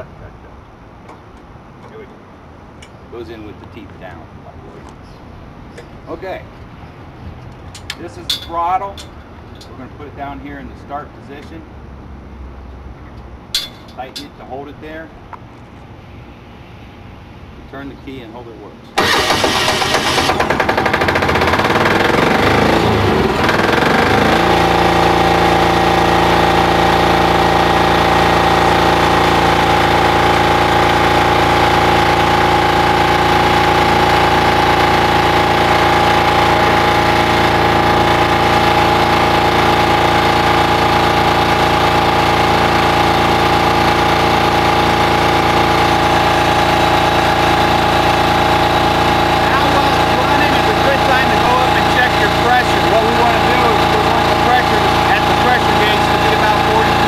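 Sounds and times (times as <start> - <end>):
diesel engine starting and running: 19.0 - 57.0.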